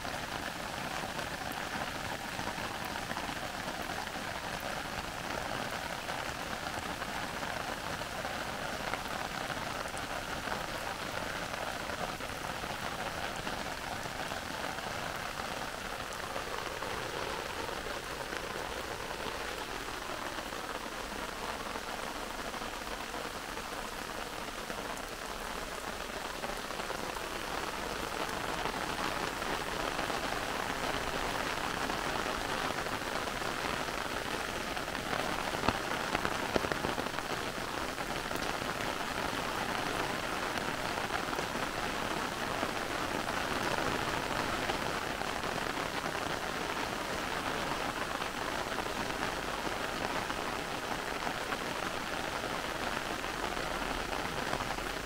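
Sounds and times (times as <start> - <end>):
heavy rain falling through trees: 0.0 - 55.0.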